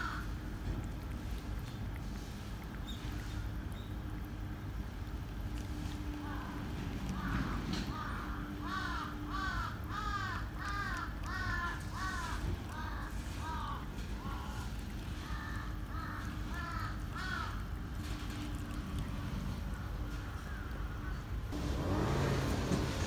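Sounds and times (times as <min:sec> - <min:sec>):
crow cawing: 0:00.0 - 0:00.3, 0:07.1 - 0:17.7, 0:20.3 - 0:21.3.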